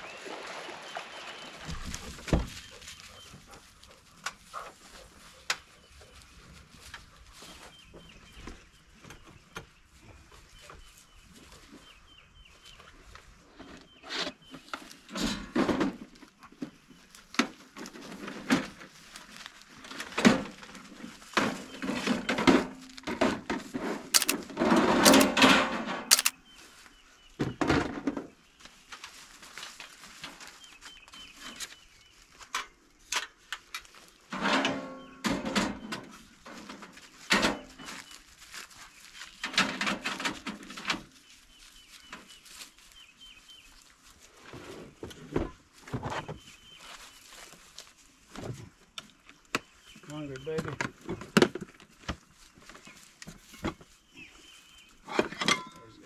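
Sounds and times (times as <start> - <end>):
camping gear knocking and clattering: 13.6 - 19.0, 19.8 - 26.4, 32.5 - 38.1, 39.4 - 41.1, 48.3 - 53.9, 55.0 - 56.0.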